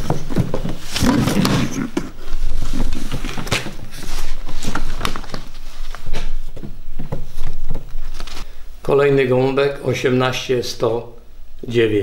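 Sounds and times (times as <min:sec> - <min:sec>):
paper sheets rustling: 0:00.0 - 0:06.7, 0:07.3 - 0:08.5.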